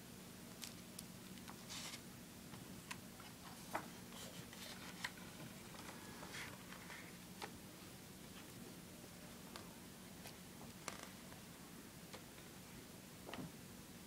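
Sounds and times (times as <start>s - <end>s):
low steady hum: 0.0s - 14.0s
book pages rustling: 1.4s - 2.0s, 3.4s - 7.5s.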